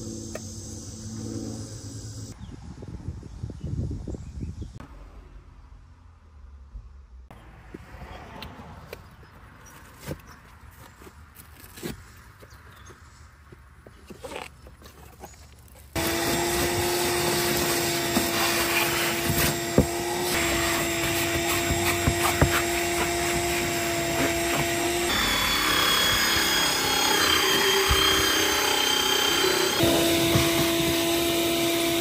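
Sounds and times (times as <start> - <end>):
vacuum cleaner running: 16.0 - 32.0.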